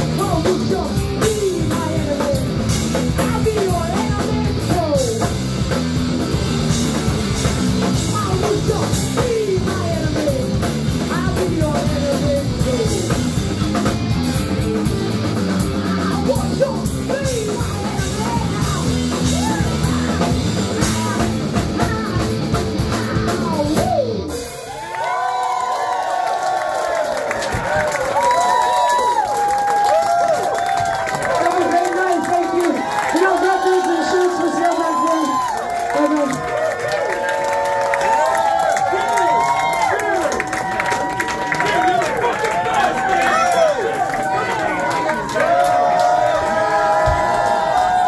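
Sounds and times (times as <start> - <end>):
punk rock band playing live: 0.0 - 25.2
crowd cheering: 12.8 - 21.2, 23.4 - 48.0
shouted vocals: 15.8 - 22.3, 23.0 - 48.0.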